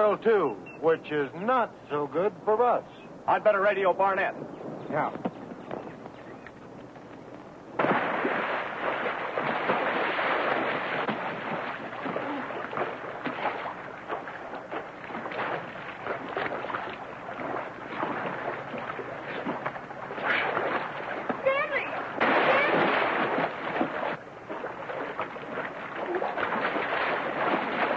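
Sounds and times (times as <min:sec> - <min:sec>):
rough water splashing and churning: 0:07.8 - 0:27.9.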